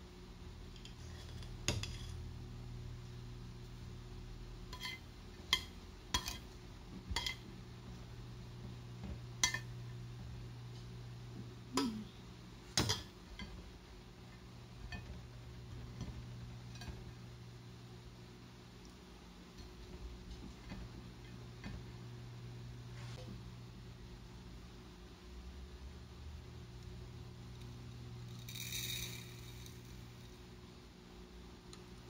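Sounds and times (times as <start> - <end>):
steady low hum: 0.0 - 32.0
metal spoon clinking on pot: 4.7 - 5.0, 5.6 - 6.5, 7.2 - 7.4.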